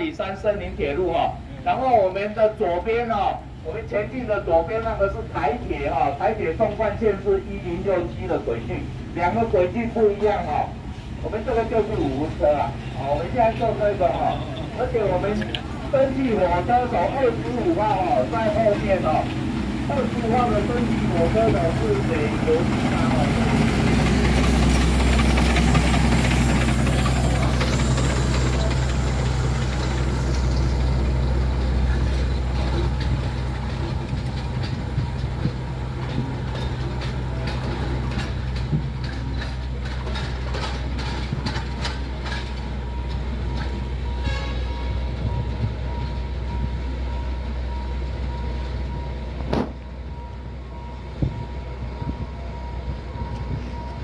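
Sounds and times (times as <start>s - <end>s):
steam train low rumble: 0.0s - 54.0s
wheels clicking on track: 1.5s - 54.0s
steam hissing: 15.2s - 32.5s.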